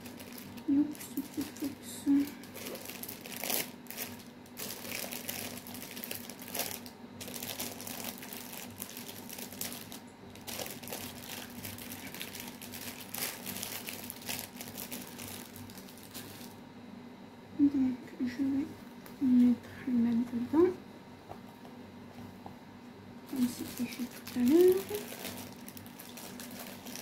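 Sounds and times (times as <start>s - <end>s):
plastic bags crinkling: 0.0s - 16.6s, 23.3s - 27.0s.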